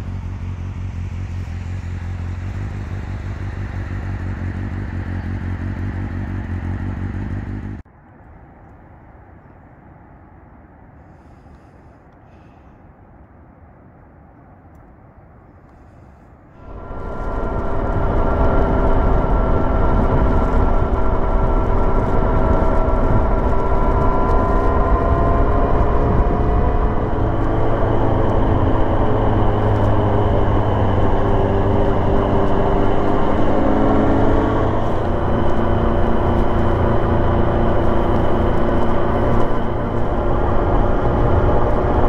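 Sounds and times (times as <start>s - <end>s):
motorcycle engine running: 0.0s - 7.8s, 16.6s - 42.0s
wind noise on microphone: 16.6s - 42.0s.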